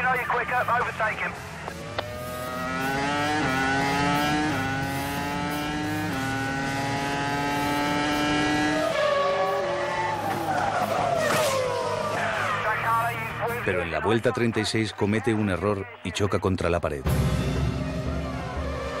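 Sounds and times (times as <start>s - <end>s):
racing car engine onboard: 0.0s - 13.9s, 17.8s - 19.0s.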